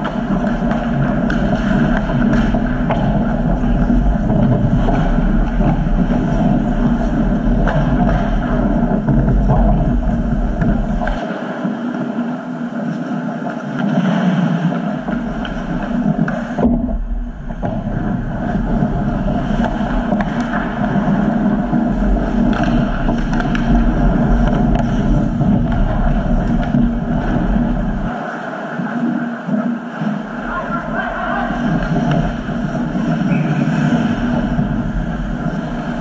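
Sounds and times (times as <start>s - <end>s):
sticks and puck clicking: 0.0s - 3.5s, 19.4s - 27.8s
loud microphone rumble: 0.0s - 11.2s, 14.9s - 36.0s
skates scraping on ice: 0.0s - 16.8s, 17.4s - 36.0s.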